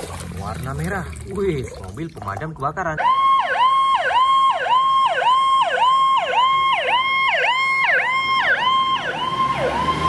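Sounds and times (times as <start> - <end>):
fire truck siren yelping: 2.9 - 10.0.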